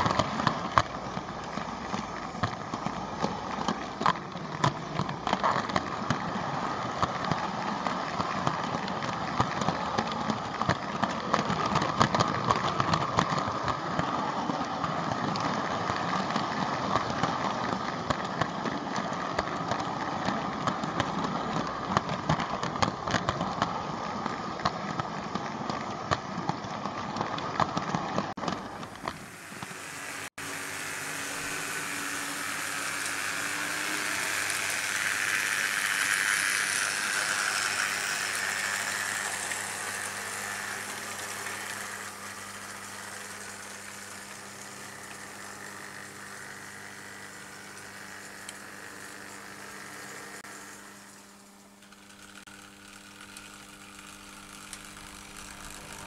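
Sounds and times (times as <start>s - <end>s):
model train wheels clattering: 0.0s - 50.6s
model train whirring past: 27.7s - 56.0s.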